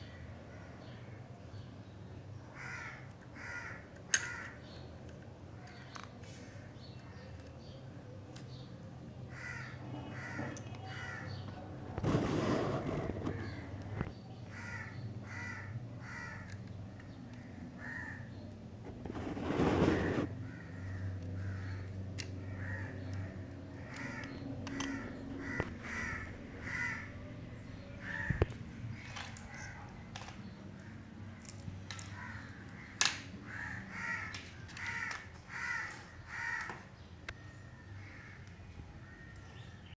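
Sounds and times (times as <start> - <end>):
bird calling: 9.3 - 18.4, 19.2 - 30.2
loud rustling: 11.9 - 14.1, 18.9 - 20.3.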